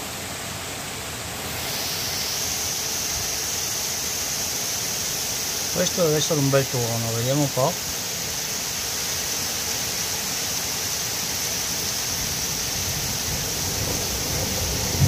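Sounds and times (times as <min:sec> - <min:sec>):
heavy rain pouring: 0:00.7 - 0:15.0
thunder rumbling: 0:12.8 - 0:15.0.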